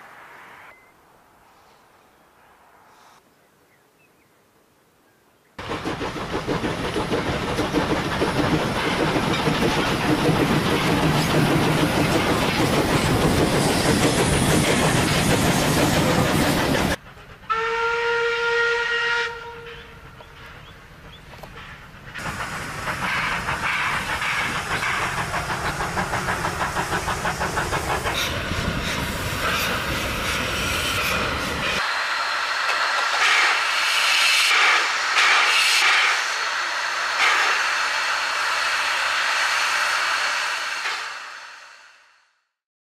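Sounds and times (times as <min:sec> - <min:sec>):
rail clatter: 0:05.6 - 0:17.4, 0:20.1 - 0:31.9, 0:32.5 - 0:41.3
steam hiss: 0:05.6 - 0:17.5, 0:21.5 - 0:42.3
steam locomotive chuffing: 0:05.6 - 0:42.2
steam whistle: 0:17.5 - 0:19.9.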